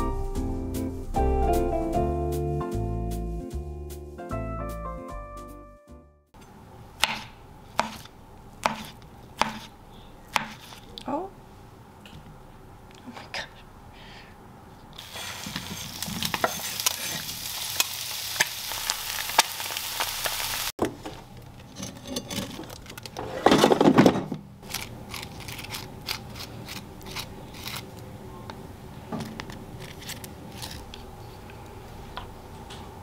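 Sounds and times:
sausage sizzling in a frying pan: 15.0s - 20.7s
drawer scraping: 21.7s - 24.4s.

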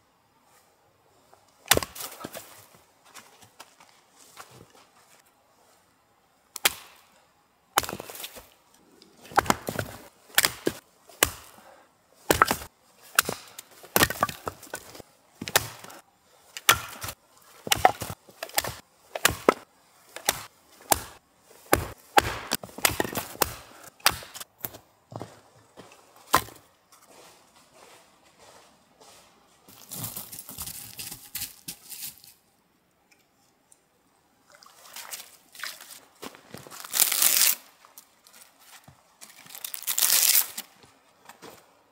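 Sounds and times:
axe chopping firewood: 1.6s - 2.5s, 6.6s - 7.1s, 7.8s - 8.5s, 9.2s - 11.6s, 12.2s - 24.8s, 26.3s - 26.7s
wood cracking apart: 39.4s - 40.6s.

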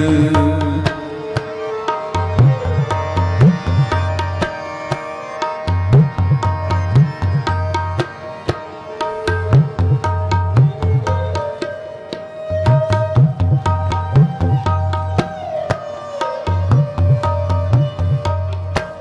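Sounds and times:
person singing: 0.0s - 1.4s
harmonium notes: 0.0s - 15.0s
tabla strokes: 0.0s - 19.0s.

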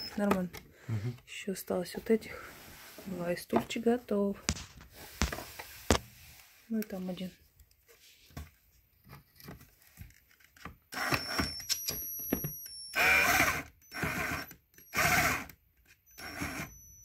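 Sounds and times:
drill motor whining: 10.9s - 12.1s, 12.9s - 17.0s.

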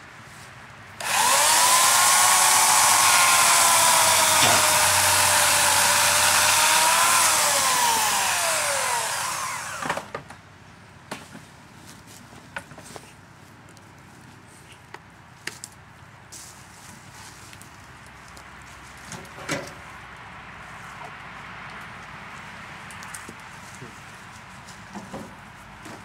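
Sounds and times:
buzzsaw running: 1.0s - 10.1s.

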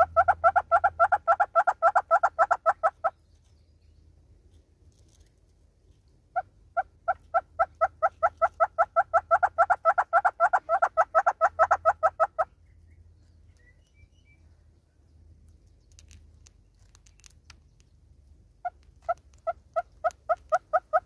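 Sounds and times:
hornbill clucking call: 0.0s - 3.2s, 6.3s - 12.5s, 18.6s - 21.0s.

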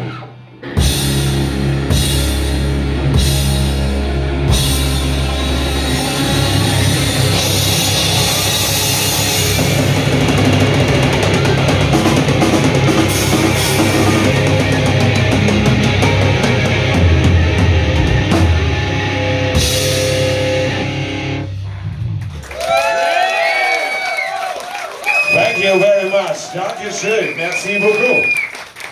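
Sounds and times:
distorted electric guitars: 0.0s - 22.5s
drum kit with cymbals: 0.8s - 21.4s.

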